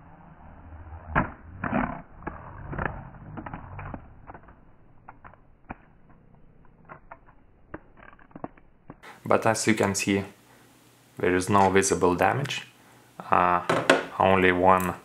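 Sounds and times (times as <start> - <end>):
knocks and scraping of tumbling drone: 0.5 - 9.0.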